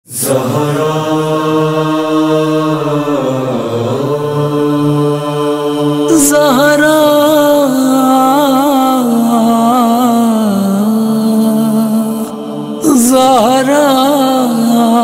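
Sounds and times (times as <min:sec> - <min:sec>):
solo voice with ornamented line: 0:00.1 - 0:15.0
wordless vocal chant: 0:00.1 - 0:15.0.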